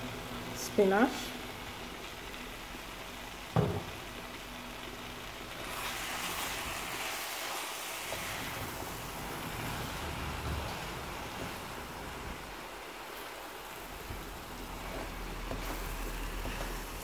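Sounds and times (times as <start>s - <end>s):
vegetables sizzling in a frying pan: 0.0s - 17.0s
wooden spoon stirring: 14.0s - 17.0s.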